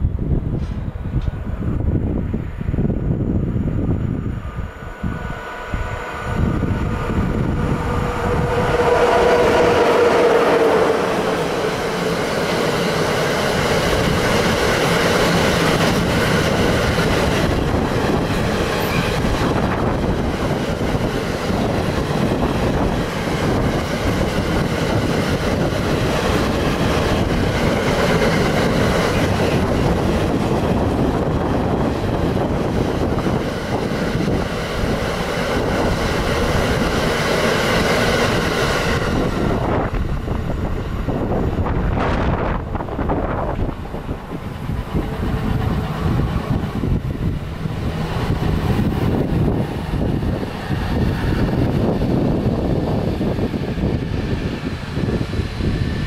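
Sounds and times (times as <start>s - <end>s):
freight train wheels rolling on rails: 0.0s - 56.0s.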